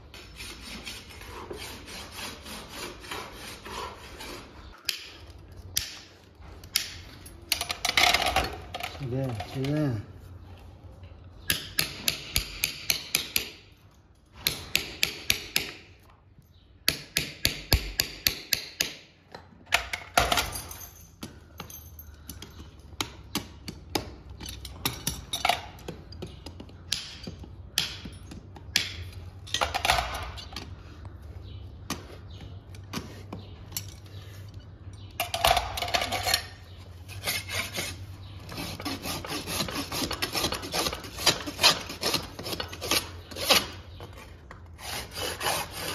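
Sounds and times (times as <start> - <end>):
rasp filing hoof: 0.1 - 5.1, 37.0 - 44.2, 44.8 - 45.9.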